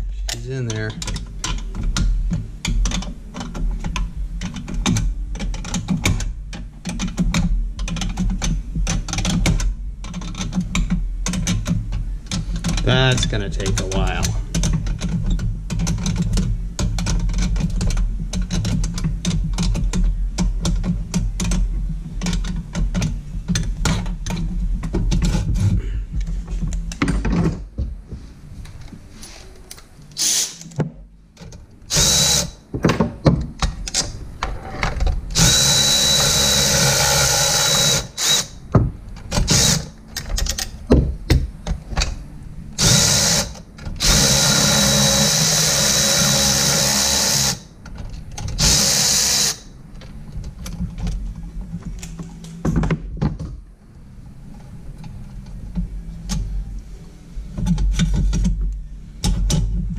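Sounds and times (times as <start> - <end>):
electric ratchet whirring: 30.2 - 30.8, 31.9 - 32.6, 35.3 - 38.6, 39.4 - 39.9, 42.8 - 47.7, 48.6 - 49.7.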